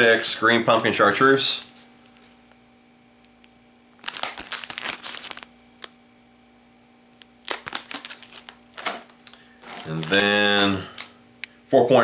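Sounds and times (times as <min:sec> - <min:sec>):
plastic package crinkling: 0:04.0 - 0:06.0, 0:07.2 - 0:11.2.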